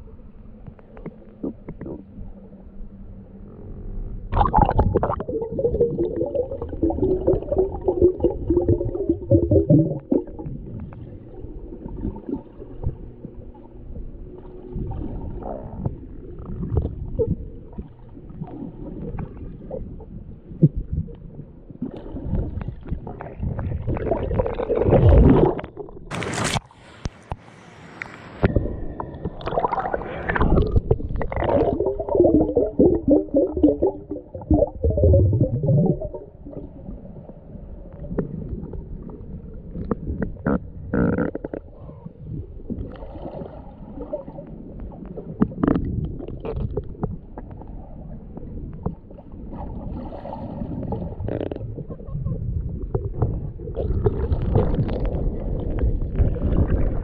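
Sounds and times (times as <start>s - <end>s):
muffled underwater gurgling: 0.0s - 26.2s, 28.4s - 57.0s
brief sharp hiss: 26.1s - 28.5s.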